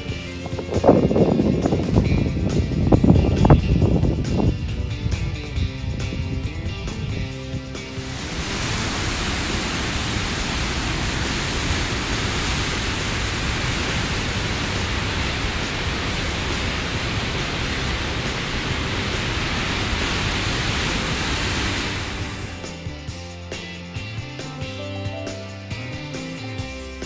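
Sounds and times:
churning white water roaring: 7.8 - 22.8.

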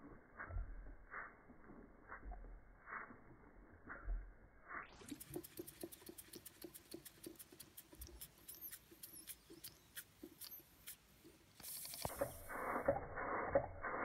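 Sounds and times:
model steam engine ticking and puffing: 4.9 - 14.0
faint high squeaks: 8.0 - 11.0.

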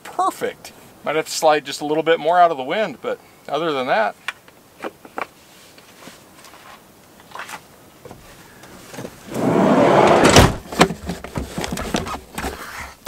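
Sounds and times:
sliding van door closing: 9.1 - 10.7.

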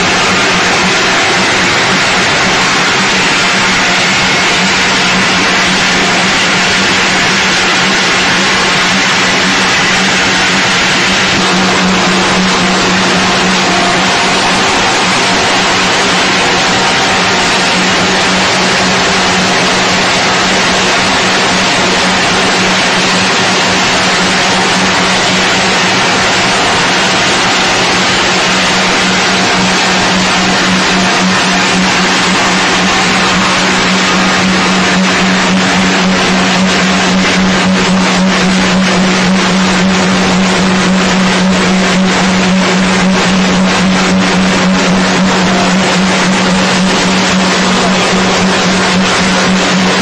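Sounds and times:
machinery noise with low hum: 0.0 - 50.0.

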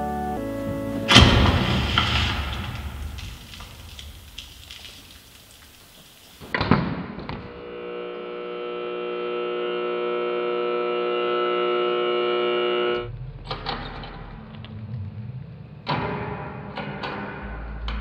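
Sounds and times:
low hum: 7.5 - 18.0.

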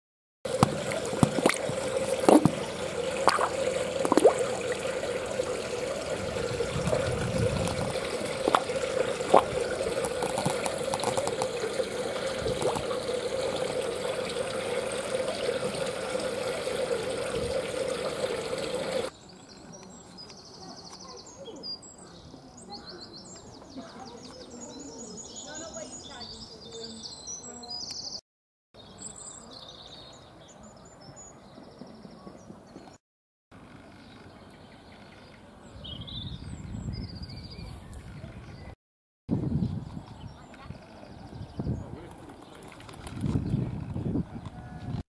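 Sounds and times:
fish splashing and slurping: 0.5 - 19.1
water trickling and splashing: 0.5 - 19.1.

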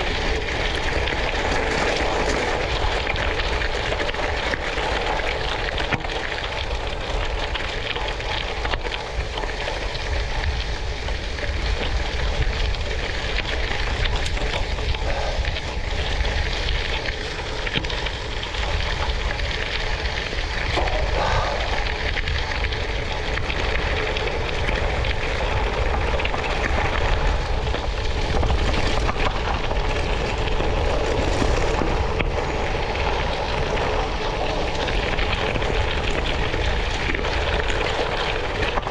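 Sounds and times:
tyres rumbling on gravel road: 0.0 - 38.9
wind on microphone: 9.8 - 38.9.

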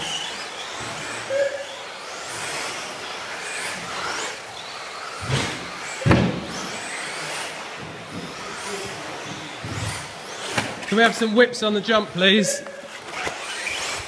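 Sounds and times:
rc car motors whining: 0.0 - 14.0
sharp knocks of car striking: 5.2 - 6.6.

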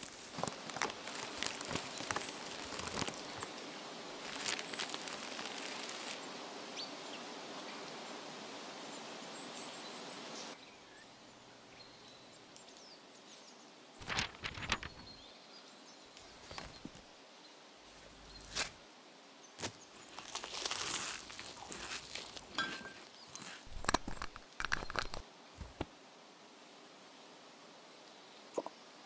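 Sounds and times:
wind rustling leaves: 0.0 - 29.0
sharp crackling clicks: 0.3 - 3.5, 23.7 - 25.2.

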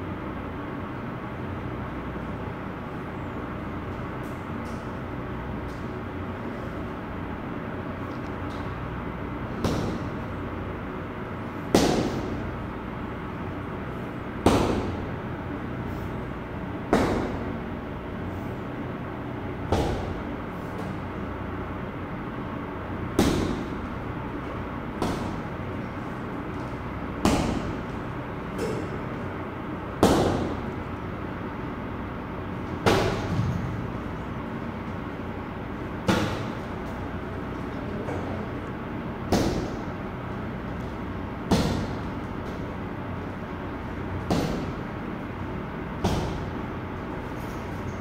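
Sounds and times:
steady background noise: 0.0 - 48.0
punches thudding on heavy bag: 9.6 - 10.3, 11.7 - 12.5, 14.4 - 15.1, 16.9 - 17.6, 19.7 - 21.0, 23.1 - 23.9, 24.9 - 25.6, 27.2 - 28.0, 30.0 - 30.7, 32.8 - 33.8, 36.0 - 36.7, 39.3 - 39.9, 41.5 - 42.6, 44.2 - 45.0, 46.0 - 46.7.

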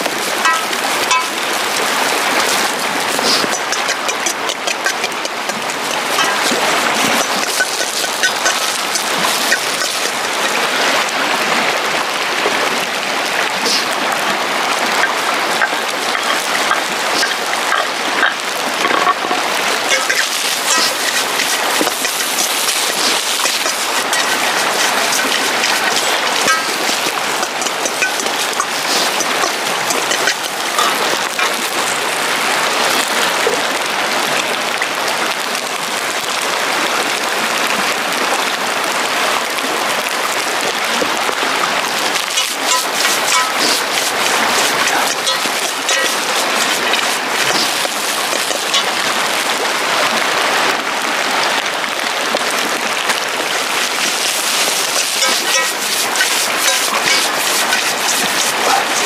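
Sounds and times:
metal ladle scraping pan: 0.4 - 1.6, 2.4 - 10.5, 15.0 - 17.8, 18.8 - 32.0, 42.2 - 49.2, 53.9 - 59.0
rice sizzling in a wok: 7.2 - 10.3, 19.9 - 31.5, 42.4 - 49.0, 53.9 - 59.0.

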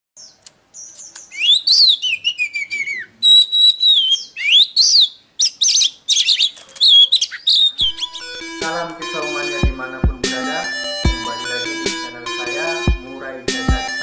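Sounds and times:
bird singing whistled phrases: 0.2 - 8.3
bird chattering notes: 0.2 - 14.0.

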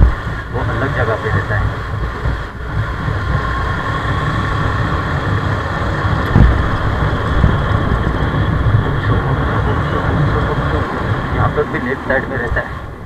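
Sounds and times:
motorcycle engine: 0.0 - 13.0
brief thump: 6.3 - 6.7.

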